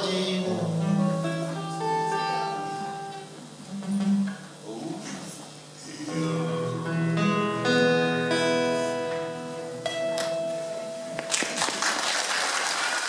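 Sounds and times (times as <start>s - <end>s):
acoustic guitar chords ringing: 0.0s - 4.6s, 5.9s - 11.6s
audience applause: 11.2s - 13.0s.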